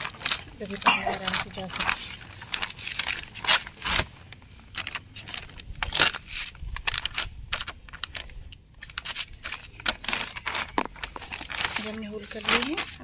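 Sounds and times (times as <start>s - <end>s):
plastic sheet crinkling: 0.0s - 13.0s.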